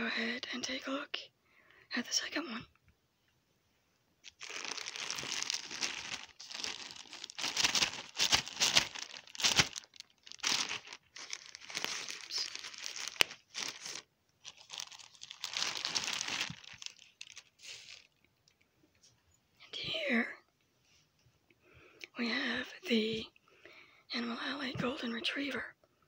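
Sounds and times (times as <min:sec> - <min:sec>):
plastic bag crinkling: 0:04.2 - 0:18.1.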